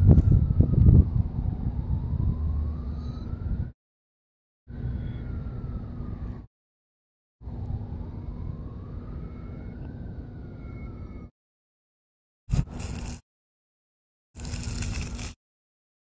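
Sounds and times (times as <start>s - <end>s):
siren wailing: 0.0s - 3.8s, 4.7s - 6.5s, 7.4s - 11.3s.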